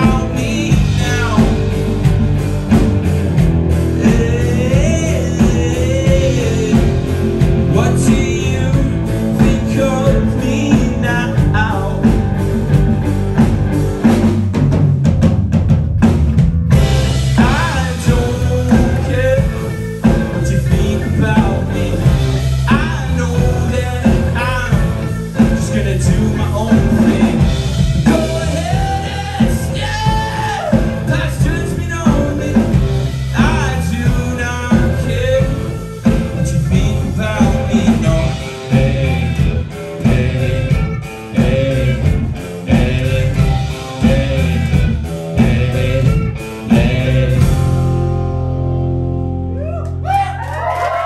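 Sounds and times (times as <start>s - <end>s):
male lead vocals: 0.0s - 14.1s, 16.9s - 48.1s
electric guitars: 0.0s - 14.7s, 16.1s - 51.0s
drum kit: 0.0s - 51.0s
crowd cheering: 49.5s - 51.0s.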